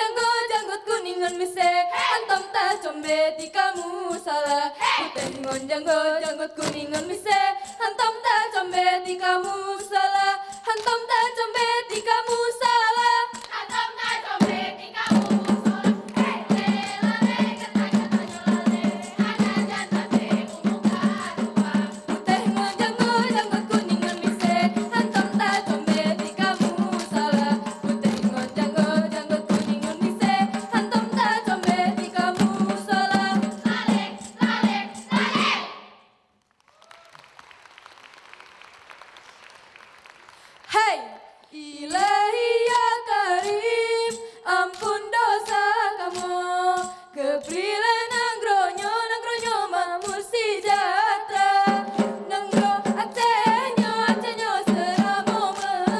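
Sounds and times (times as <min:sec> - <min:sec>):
girls singing in unison: 0:00.0 - 0:35.9, 0:40.7 - 0:55.9
rhythmic hand claps and body slaps: 0:04.9 - 0:05.7, 0:13.3 - 0:35.6, 0:36.4 - 0:40.8.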